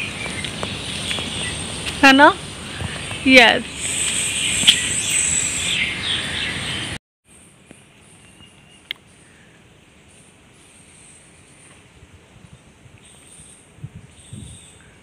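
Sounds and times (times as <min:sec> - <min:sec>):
birds chirping: 0:00.0 - 0:07.0
wind rushing through trees: 0:00.0 - 0:07.0, 0:09.0 - 0:15.0
insects chirping: 0:00.0 - 0:09.4
sharp click: 0:04.6 - 0:04.9.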